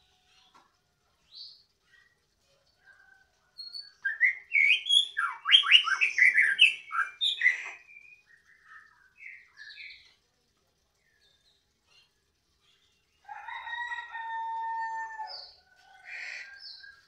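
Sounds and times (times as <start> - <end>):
songbird singing: 2.8 - 10.2, 10.8 - 17.0.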